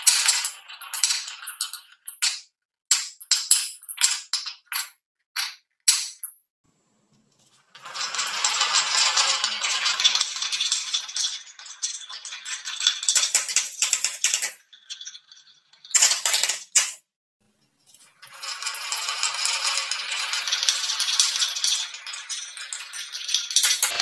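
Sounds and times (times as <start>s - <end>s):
balls rattling down wooden track: 0.0s - 6.1s, 7.8s - 17.0s, 18.2s - 24.0s
balls clacking into toy truck: 7.8s - 15.1s, 15.9s - 17.0s, 18.2s - 24.0s.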